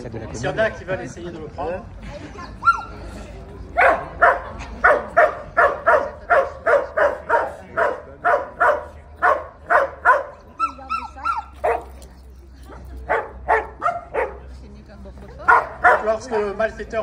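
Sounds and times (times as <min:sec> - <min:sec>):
dog barking: 0:03.8 - 0:11.9, 0:13.1 - 0:14.5, 0:15.5 - 0:16.5.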